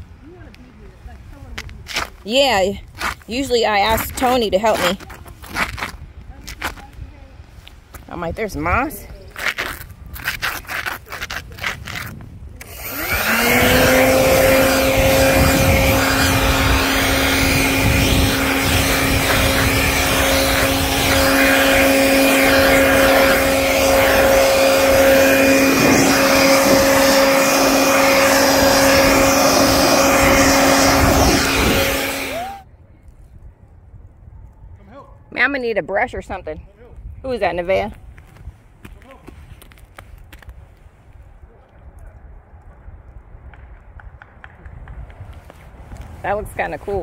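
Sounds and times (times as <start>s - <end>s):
leaf blower whining: 12.6s - 32.6s.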